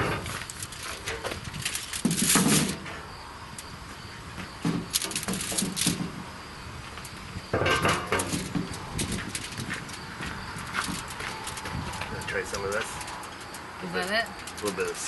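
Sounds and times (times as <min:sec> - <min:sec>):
aluminium foil crinkling: 0:00.3 - 0:02.5.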